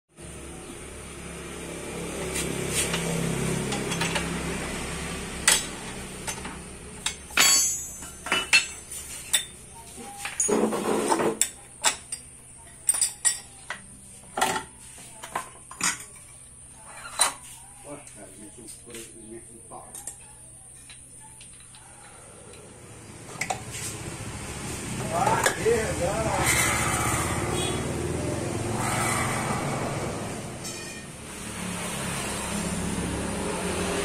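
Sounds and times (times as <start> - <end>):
metal tools clinking: 5.5 - 11.1.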